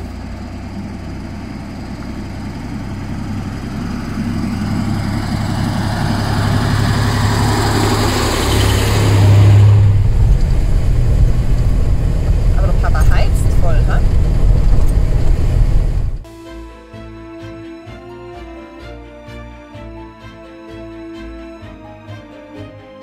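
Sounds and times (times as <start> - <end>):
engine drone inside truck cab: 0.0 - 16.3
truck diesel engine driving on gravel: 0.0 - 16.3.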